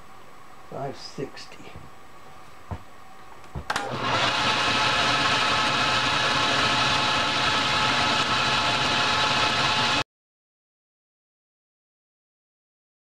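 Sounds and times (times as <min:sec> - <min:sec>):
metal lathe humming: 0:03.9 - 0:10.0.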